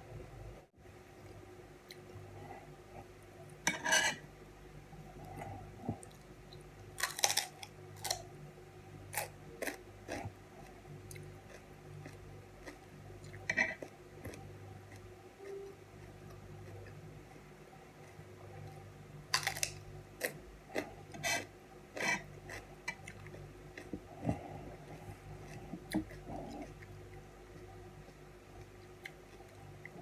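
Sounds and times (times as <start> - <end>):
faint low hum: 0.0 - 30.0
knife clicking and scraping on plate: 3.6 - 4.2
crunchy cucumber bites and chewing: 7.0 - 8.2, 19.3 - 20.9.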